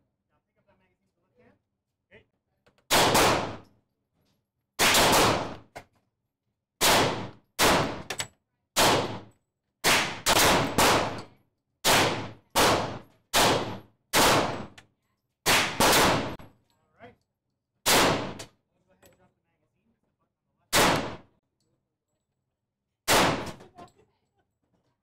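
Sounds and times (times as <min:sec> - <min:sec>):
echoing gunshots: 0:02.9 - 0:03.6, 0:04.8 - 0:05.6, 0:06.8 - 0:08.1, 0:08.8 - 0:14.7, 0:15.4 - 0:16.4, 0:17.8 - 0:18.4, 0:20.7 - 0:21.2, 0:23.1 - 0:23.6.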